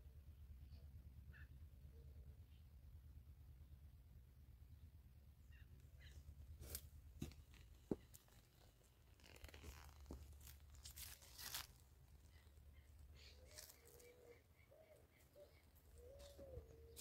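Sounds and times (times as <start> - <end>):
low steady hum: 0.0 - 17.0
footsteps on grass and leaves: 6.6 - 12.1, 13.2 - 14.2.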